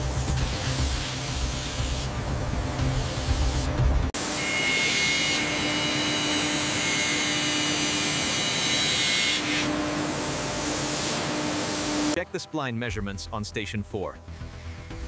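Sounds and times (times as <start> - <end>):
background music: 0.0 - 4.2, 12.2 - 15.0
milling machine cutting metal: 4.2 - 12.2.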